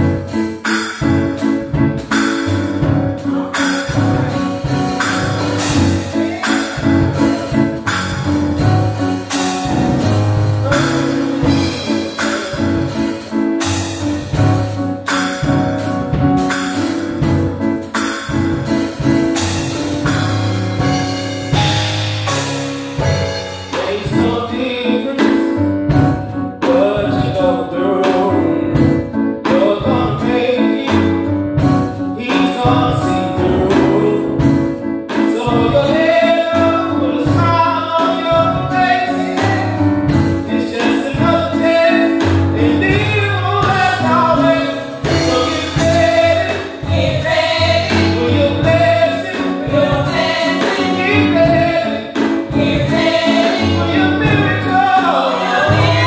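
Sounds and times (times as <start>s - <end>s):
instrumental accompaniment: 0.0s - 56.0s
steady drum beat: 0.0s - 56.0s
group singing gospel song: 2.4s - 15.6s, 35.2s - 56.0s.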